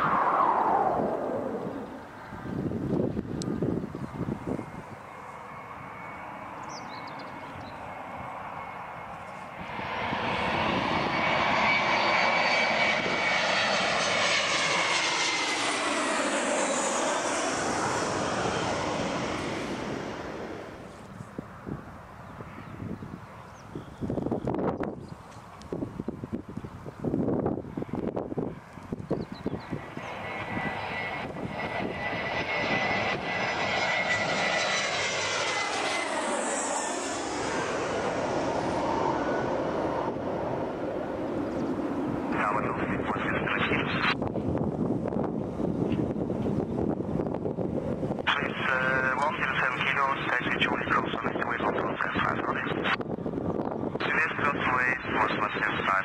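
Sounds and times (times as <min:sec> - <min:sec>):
wind buffeting microphone: 0:00.0 - 0:05.2, 0:05.8 - 0:36.2, 0:43.7 - 0:49.1, 0:50.5 - 0:54.7
jet airplane passing overhead: 0:00.0 - 0:56.0
high fan whine: 0:12.8 - 0:43.1, 0:43.7 - 0:49.8.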